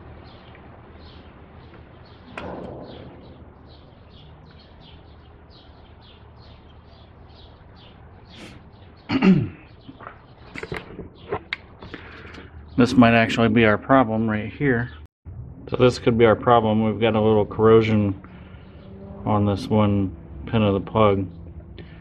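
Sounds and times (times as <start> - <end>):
bird chirping: 0.2 - 13.5.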